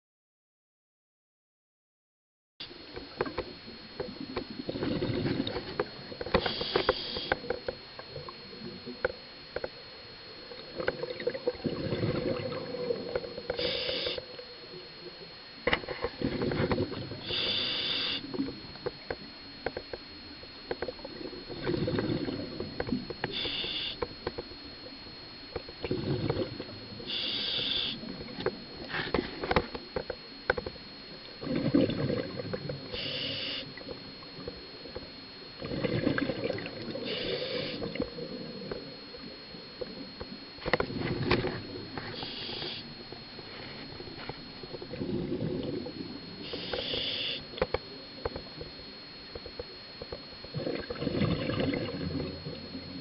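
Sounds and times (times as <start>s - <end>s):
faint high whine: 2.6s - 53.0s
exhaled bubbles gurgling: 3.1s - 9.0s, 10.3s - 15.2s, 16.0s - 19.1s, 20.8s - 24.1s, 25.5s - 29.6s, 30.9s - 53.0s
regulator inhalation hiss: 6.4s - 7.4s, 13.5s - 14.3s, 17.2s - 18.4s, 23.3s - 24.1s, 27.0s - 28.1s, 32.9s - 33.8s, 37.0s - 38.0s, 42.0s - 43.8s, 46.4s - 47.6s.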